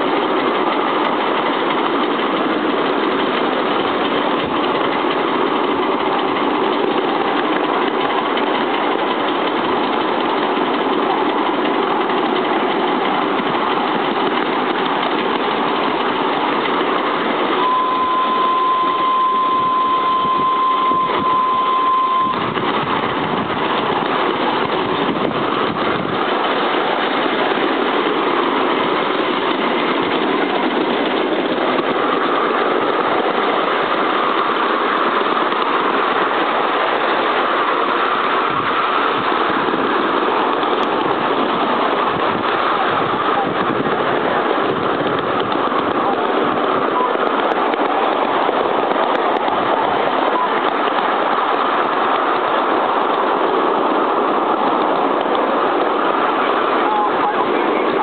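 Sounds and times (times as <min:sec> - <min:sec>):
steam locomotive chuffing: 0:00.0 - 0:58.0
wheels running on rails: 0:00.0 - 0:58.0
steady high tone: 0:17.3 - 0:22.8.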